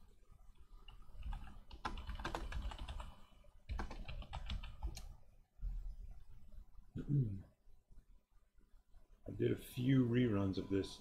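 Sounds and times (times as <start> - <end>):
typing on a keyboard: 0.9 - 5.1.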